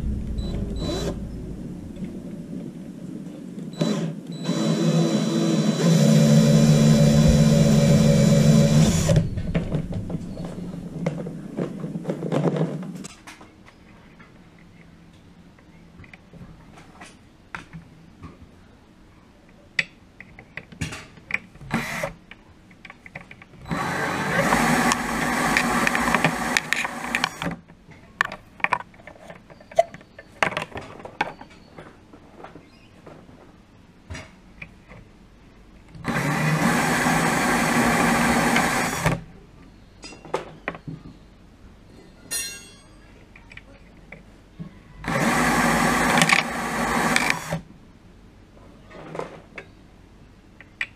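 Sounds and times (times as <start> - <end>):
cordless drill running: 3.8 - 9.3, 23.7 - 27.5, 36.1 - 39.2
clicks and knocks of handling: 22.3 - 23.6, 25.9 - 35.1.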